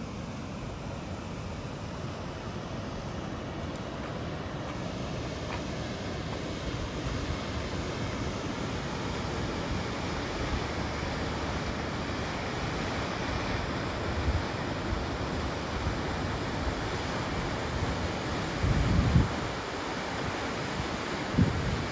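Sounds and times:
waterfall rushing into pool: 0:00.0 - 0:21.9
wind buffeting microphone: 0:18.5 - 0:19.7.

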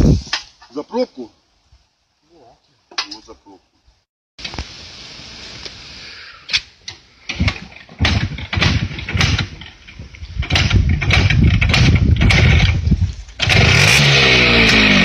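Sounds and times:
motorcycle engine starting: 0:07.3 - 0:15.0.

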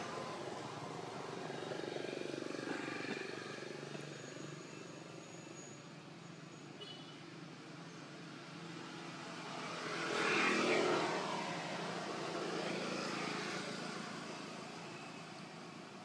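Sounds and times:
engine passing by: 0:00.0 - 0:04.6, 0:09.0 - 0:14.9.

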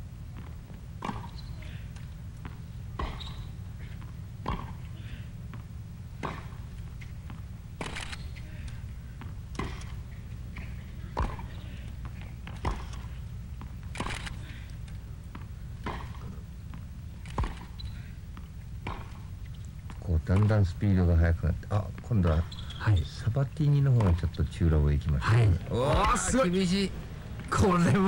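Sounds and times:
steady low hum: 0:00.0 - 0:28.0
tennis ball hit by rackets: 0:00.4 - 0:05.6, 0:06.2 - 0:07.9, 0:09.2 - 0:14.0, 0:15.3 - 0:16.4, 0:17.3 - 0:17.9, 0:18.8 - 0:19.3.

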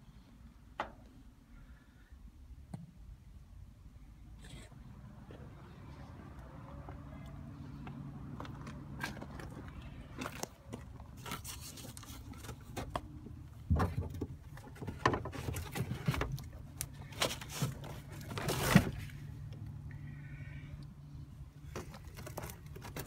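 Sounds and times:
carpet rustling and scraping: 0:06.6 - 0:19.3, 0:21.6 - 0:23.0
steady low hum: 0:15.6 - 0:22.5.

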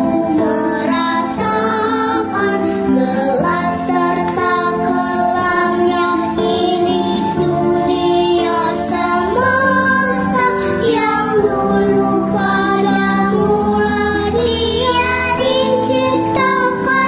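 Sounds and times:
girls choir singing: 0:00.0 - 0:17.0.

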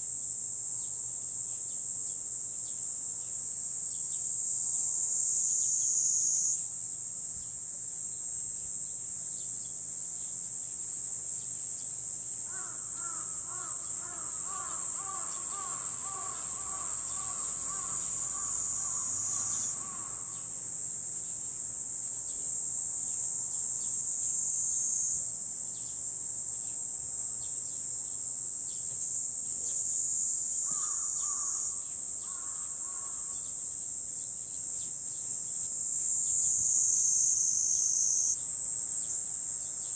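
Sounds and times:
insect chorus drone: 0:00.0 - 0:39.9
bird calling: 0:12.5 - 0:20.5.

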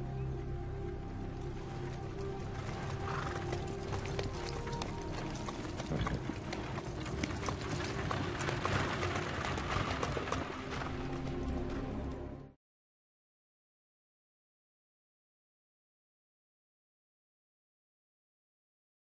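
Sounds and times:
background music: 0:00.0 - 0:12.6
hooves clip-clopping on pavement: 0:01.4 - 0:12.4.

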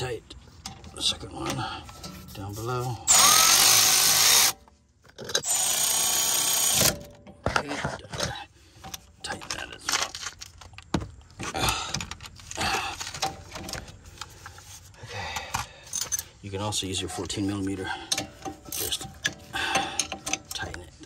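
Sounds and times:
light metal clicks and knocks: 0:00.6 - 0:02.4, 0:18.1 - 0:21.0
cordless power tool whine: 0:03.1 - 0:04.6, 0:05.4 - 0:07.0.

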